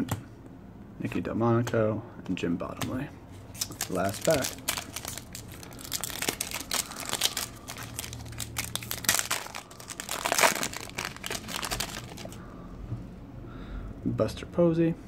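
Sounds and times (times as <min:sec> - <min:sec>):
foil wrapper crinkling: 0:03.6 - 0:12.4.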